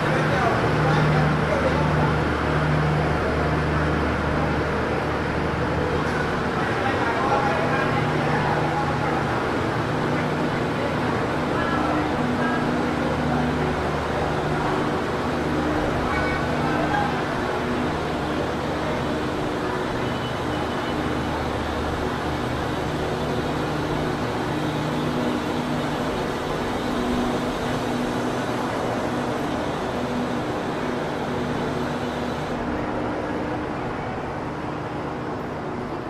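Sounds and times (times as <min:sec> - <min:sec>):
vehicle engines humming: 0:00.0 - 0:33.9
passing traffic hiss: 0:16.6 - 0:33.2.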